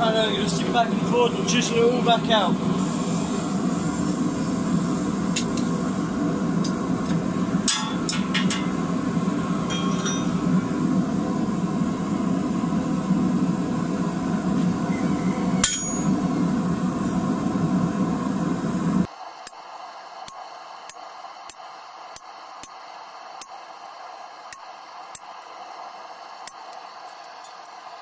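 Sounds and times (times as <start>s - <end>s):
hammer ringing on chisel: 15.6s - 16.2s.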